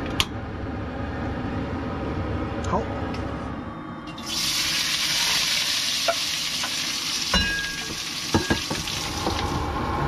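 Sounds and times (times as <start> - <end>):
vegetables sizzling in hot oil: 4.2 - 9.6.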